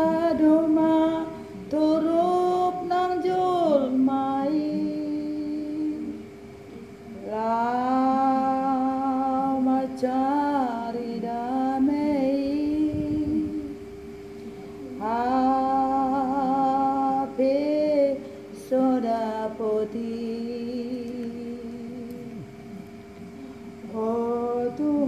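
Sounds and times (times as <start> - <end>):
woman singing unaccompanied: 0.0 - 23.1, 23.7 - 25.0
faint steady hum: 0.0 - 25.0.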